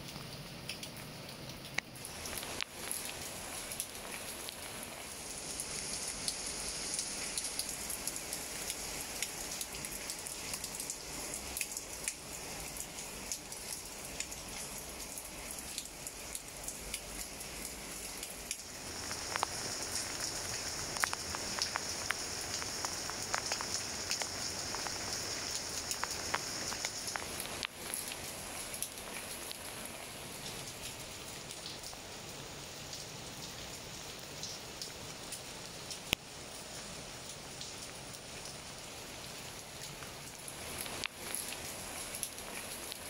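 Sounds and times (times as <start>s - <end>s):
rain pattering on leaves: 0.0s - 43.0s.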